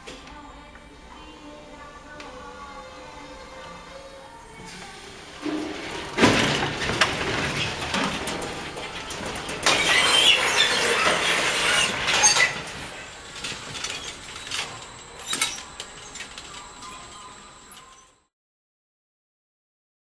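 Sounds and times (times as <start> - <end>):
machinery running: 1.8 - 18.3
plastic crates knocking and clattering: 5.5 - 11.2.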